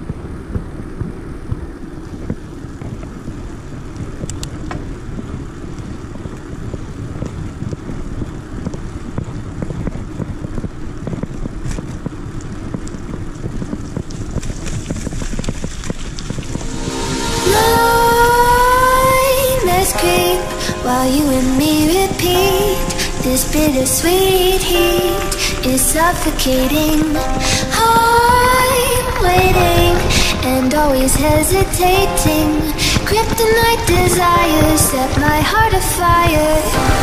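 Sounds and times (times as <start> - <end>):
bike clicks and knocks: 0.0 - 16.5
bicycle tyres rolling on pavement: 0.0 - 37.0
wind buffeting microphone: 0.0 - 37.0.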